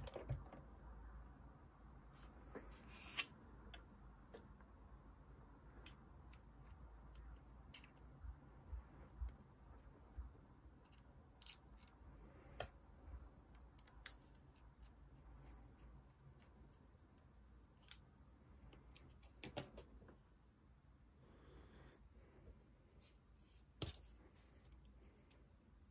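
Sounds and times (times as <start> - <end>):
small plastic parts clicking: 10.8 - 12.0, 13.5 - 14.6.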